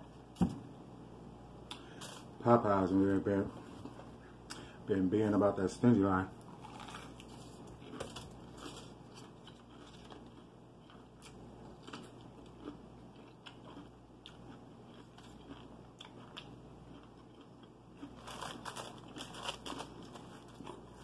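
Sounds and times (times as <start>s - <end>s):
person chewing crunchy food: 6.4s - 21.0s.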